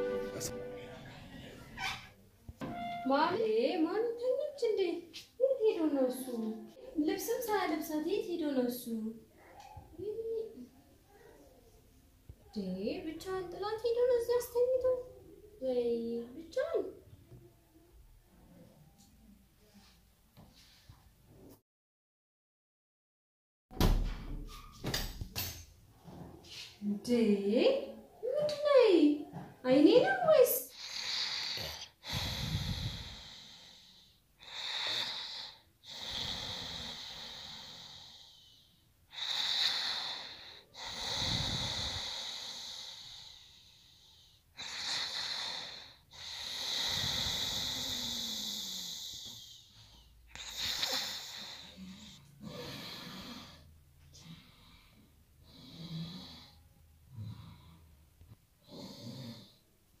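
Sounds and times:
man snoring heavily: 30.8s - 33.8s, 34.4s - 38.4s, 39.1s - 43.7s, 44.6s - 49.5s, 52.4s - 53.6s, 55.5s - 56.6s, 58.6s - 59.6s.

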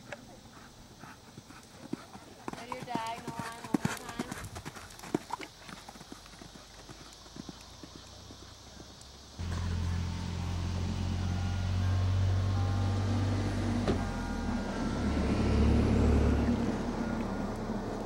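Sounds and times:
vehicle engine humming: 8.1s - 18.0s.

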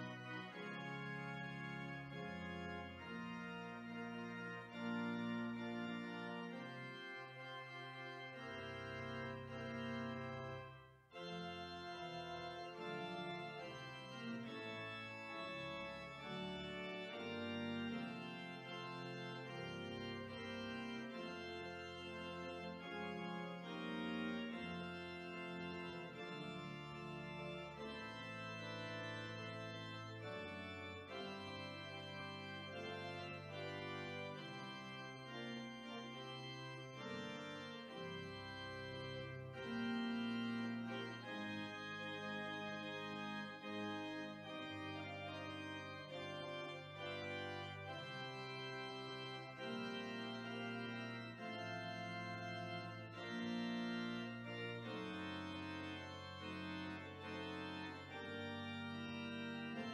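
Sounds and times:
organ playing sustained chords: 0.0s - 59.9s.

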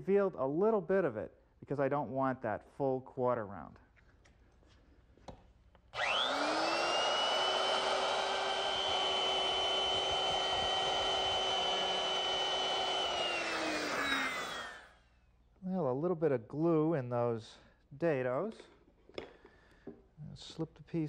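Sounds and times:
electric router whining: 6.0s - 15.0s.

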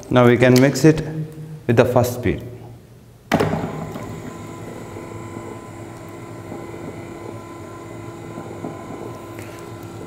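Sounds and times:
electric motor humming: 3.6s - 10.0s.

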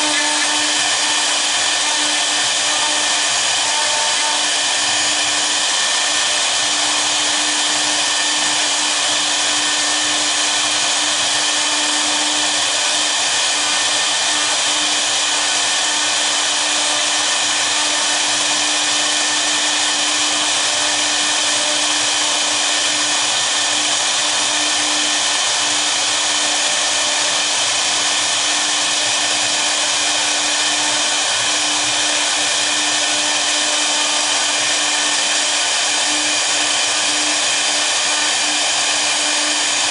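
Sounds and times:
router engraving hiss: 0.0s - 39.9s.

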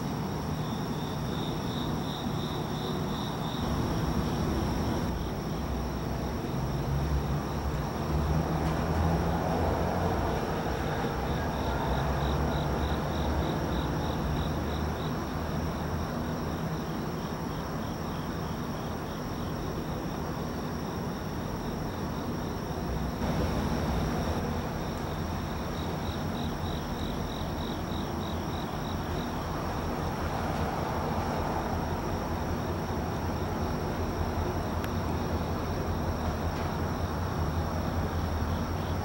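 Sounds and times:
crickets chirping: 0.0s - 39.0s
high insect drone: 0.0s - 39.0s
distant locomotive engines rumbling: 3.4s - 17.2s, 22.5s - 39.0s.

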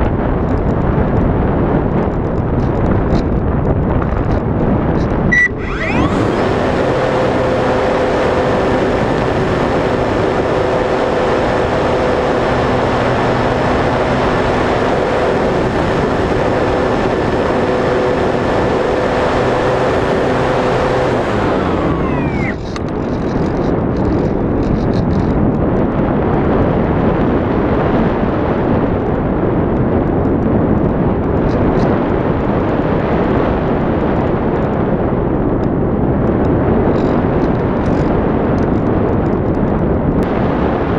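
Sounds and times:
wind noise on microphone: 0.0s - 40.9s
model aircraft motor and propeller: 4.0s - 25.6s, 36.4s - 39.9s.

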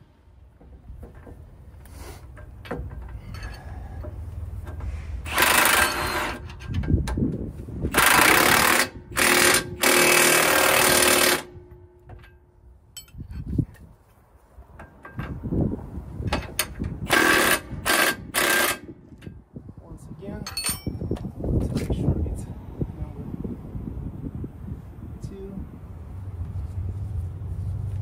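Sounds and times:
impact wrench hammering: 5.3s - 6.5s, 7.9s - 12.4s, 16.3s - 18.9s.

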